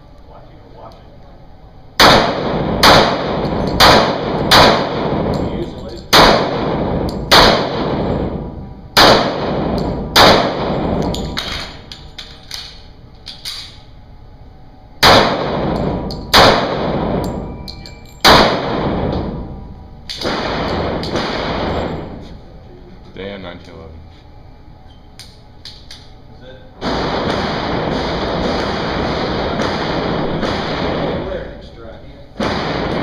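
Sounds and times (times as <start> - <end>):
pistol shots with ringing echo: 2.0 - 11.8, 15.0 - 19.5, 20.1 - 22.2, 26.8 - 31.6, 32.4 - 33.0.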